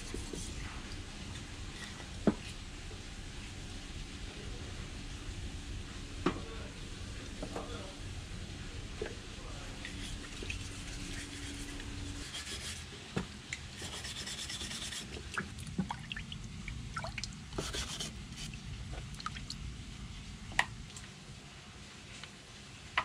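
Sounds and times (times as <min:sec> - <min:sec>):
wood scrubbed in water: 0:13.8 - 0:15.5, 0:17.5 - 0:18.6.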